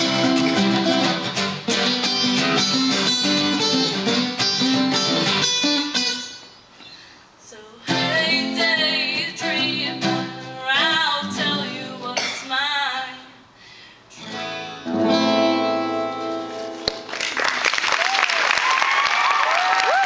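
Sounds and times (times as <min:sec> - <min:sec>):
strummed acoustic guitars: 0:00.0 - 0:07.2, 0:07.8 - 0:12.9, 0:14.1 - 0:17.2
woman singing: 0:07.4 - 0:13.4
audience applauding and cheering: 0:16.9 - 0:20.0.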